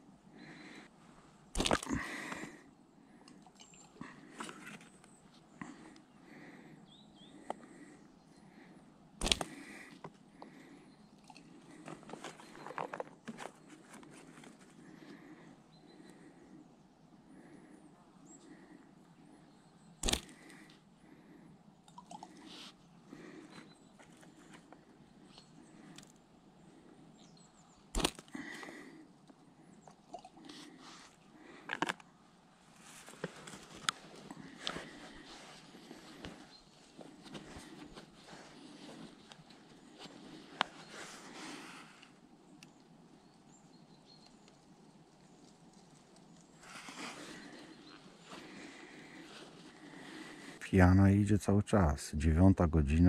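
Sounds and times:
faint bird chirps: 2.8s - 8.9s, 9.8s - 31.6s, 34.4s - 51.4s
catapult elastic snapping: 9.2s - 9.6s, 20.0s - 20.4s, 27.9s - 28.3s
handling clicks and rustling: 11.8s - 14.8s
small clicks: 20.0s - 20.7s
rustle: 32.6s - 50.6s.

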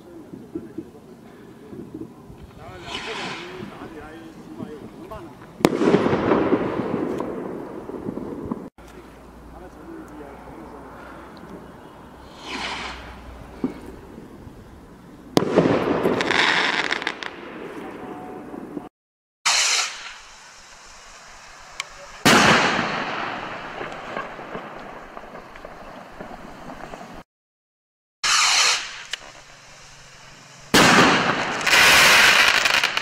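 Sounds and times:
firework bursting bangs: 1.7s - 8.7s, 12.3s - 14.2s, 15.3s - 18.9s, 19.5s - 27.2s, 28.2s - 33.0s
firework rocket whoosh: 2.4s - 8.7s, 12.2s - 14.2s, 19.5s - 27.2s, 28.2s - 33.0s.

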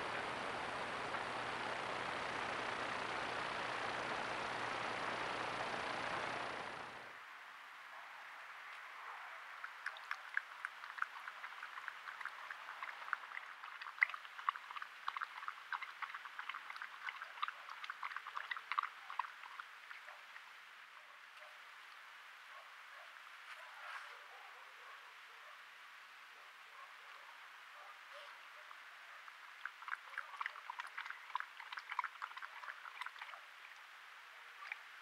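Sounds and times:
animal lapping water: 9.4s - 22.0s, 28.1s - 35.0s.

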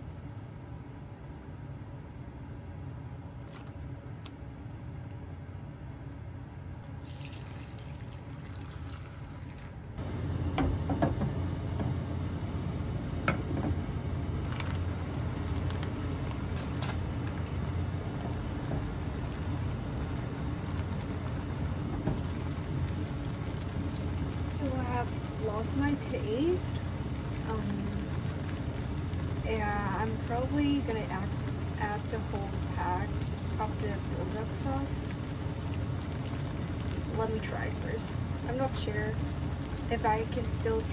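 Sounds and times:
low steady hum: 0.0s - 40.9s
water rushing in pot: 7.0s - 9.9s.

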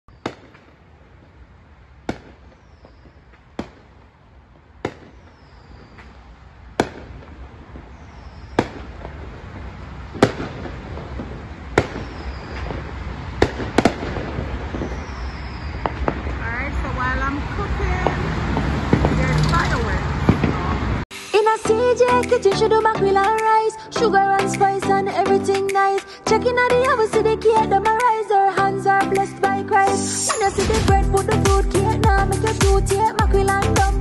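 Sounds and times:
fireworks bangs: 0.1s - 23.4s, 30.0s - 34.0s
passing cars traffic hum: 3.3s - 22.3s.

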